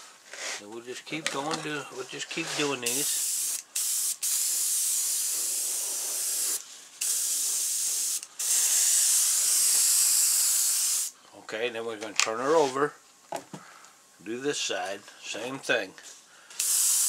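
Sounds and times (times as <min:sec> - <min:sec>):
airbrush spraying hiss: 0:02.4 - 0:11.2, 0:16.6 - 0:17.0.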